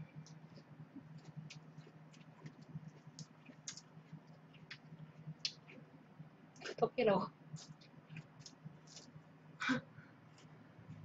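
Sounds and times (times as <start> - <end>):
leafy greens being chewed: 0.1 - 5.9, 7.5 - 9.2, 10.3 - 11.0.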